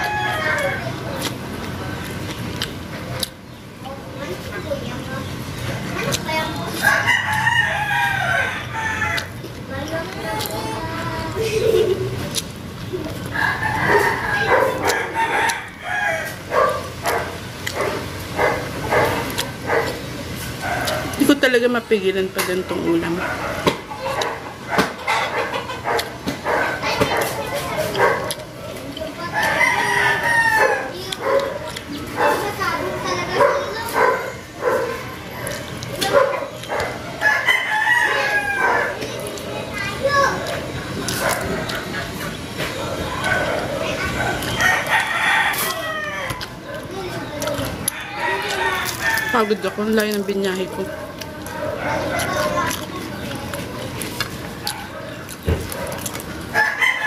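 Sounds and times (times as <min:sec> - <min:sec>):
rooster crowing: 0:00.0 - 0:00.9, 0:06.8 - 0:09.4, 0:13.3 - 0:16.7, 0:29.2 - 0:31.0, 0:37.1 - 0:39.0, 0:43.2 - 0:46.5, 0:47.8 - 0:50.0, 0:56.5 - 0:57.0
chickens clucking: 0:00.0 - 0:57.0.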